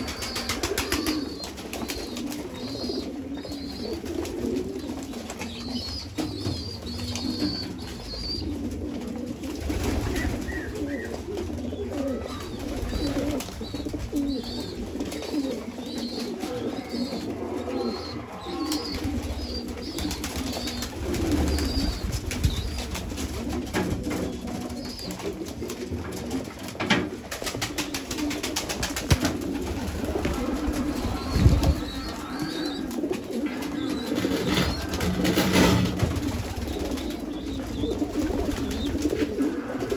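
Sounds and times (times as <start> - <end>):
pigeons cooing: 0.0 - 39.9
wing flaps: 27.2 - 39.9.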